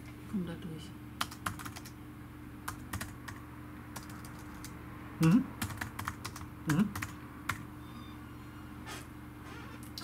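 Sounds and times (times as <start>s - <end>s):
faint steady hum: 0.0s - 10.0s
keystrokes on computer keyboard: 1.2s - 2.0s, 2.7s - 3.4s, 4.0s - 4.7s, 5.6s - 7.6s.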